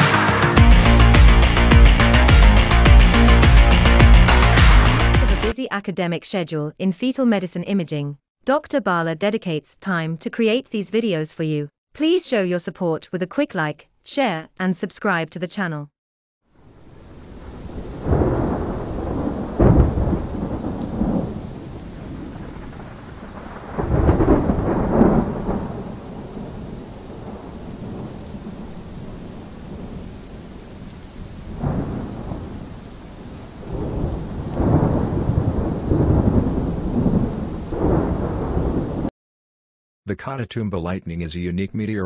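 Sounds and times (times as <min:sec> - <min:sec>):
heavy rain: 0:00.0 - 0:05.6, 0:16.6 - 0:39.1
thunder rumbling and cracking: 0:16.9 - 0:39.1.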